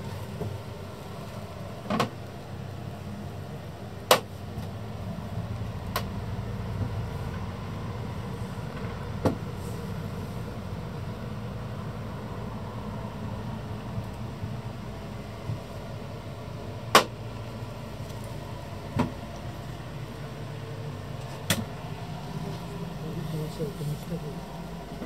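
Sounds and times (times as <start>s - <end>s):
low steady hum: 0.0s - 25.0s
sharp knocks and clicks: 16.9s - 17.2s.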